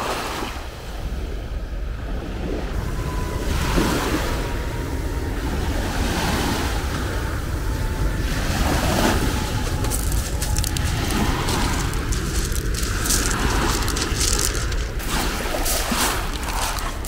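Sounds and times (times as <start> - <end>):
wind buffeting microphone: 0.0 - 17.0
waves washing on pebble beach: 2.5 - 17.0
pebbles clicking rattle: 9.6 - 17.0.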